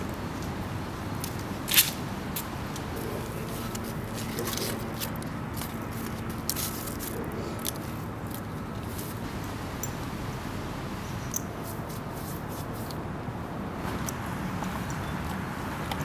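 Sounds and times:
dry leaves crackling: 3.0s - 9.5s.

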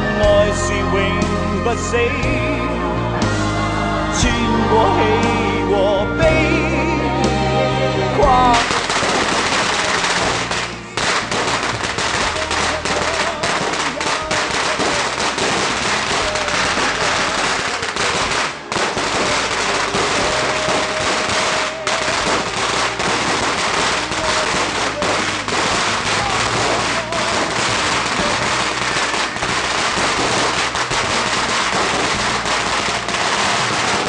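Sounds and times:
firecrackers crackling: 8.0s - 34.0s.

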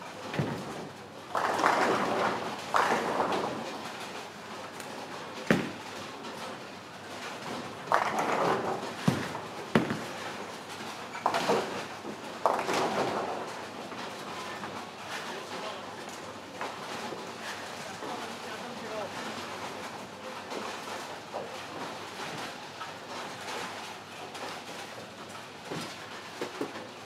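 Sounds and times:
bowling balls knocking: 0.3s - 13.4s
bowling pins crashing: 0.3s - 13.6s.

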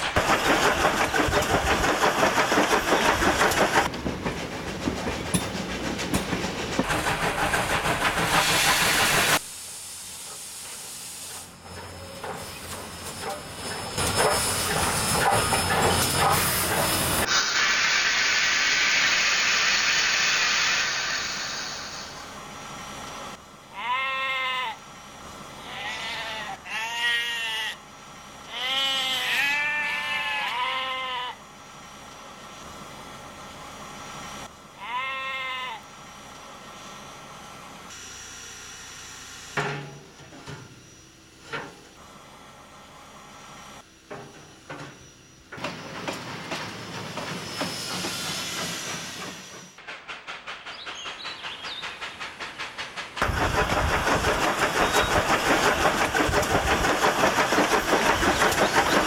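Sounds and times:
steam hissing: 0.0s - 3.9s, 4.7s - 23.4s, 44.5s - 59.0s
steam locomotive chuffing: 0.0s - 23.7s, 35.8s - 59.0s
sheep bleating: 23.7s - 24.8s, 25.6s - 27.8s, 28.5s - 31.4s, 34.8s - 35.8s.

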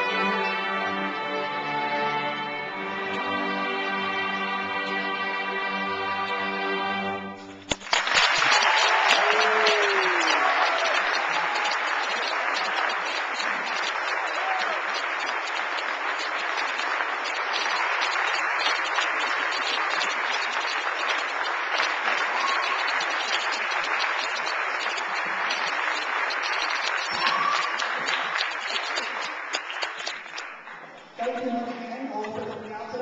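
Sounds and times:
audience applauding: 7.6s - 31.8s.

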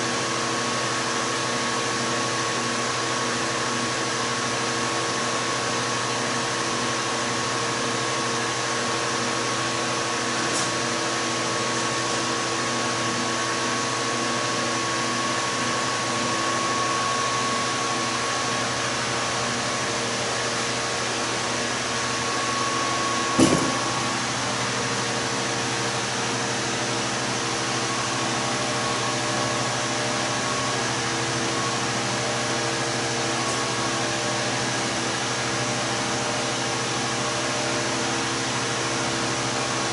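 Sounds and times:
sharp knock: 23.4s - 23.9s.

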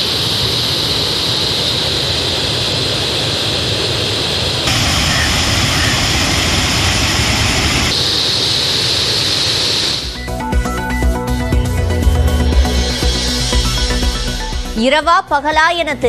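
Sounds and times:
floodwater roaring over a weir: 0.0s - 10.2s.

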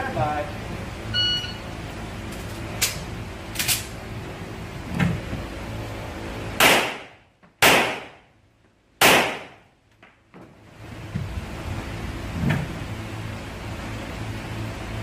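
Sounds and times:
pistol shots with echo: 6.6s - 8.2s, 9.0s - 9.6s.

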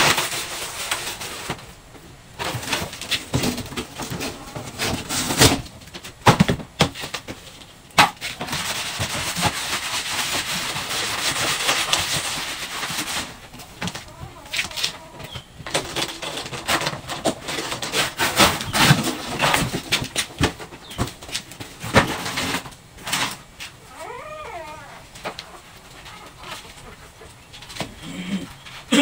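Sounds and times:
cardboard slapping on concrete floor: 2.4s - 23.3s
cardboard rustling and scraping: 2.4s - 26.7s.

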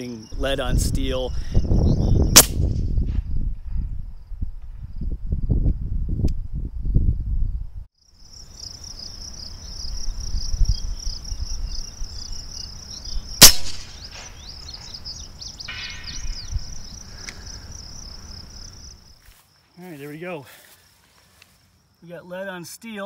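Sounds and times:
insects chirping: 0.0s - 23.0s
air rifle shot: 2.3s - 2.9s, 13.4s - 14.4s
distant steel target ringing: 15.6s - 16.6s.

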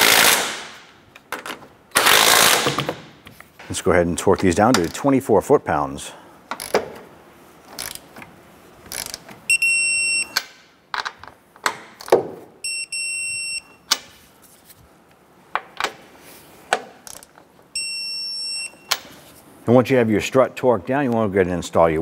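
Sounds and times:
wrench clicking on nuts: 7.7s - 8.1s, 8.9s - 9.3s
torque wrench beeping: 9.0s - 10.4s.

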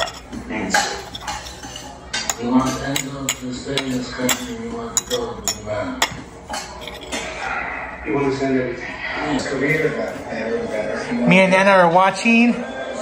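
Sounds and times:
dishes and cutlery clinking: 0.0s - 7.6s.

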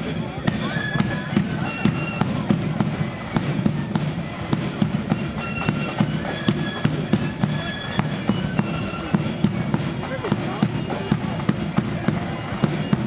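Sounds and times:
snare and bass drum strokes: 0.0s - 13.0s
high flute notes: 0.1s - 13.0s.

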